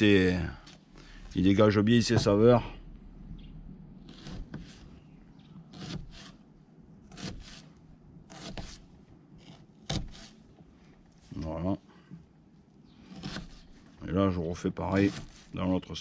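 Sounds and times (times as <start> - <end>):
knife slicing onion: 7.1 - 7.7, 8.3 - 10.4.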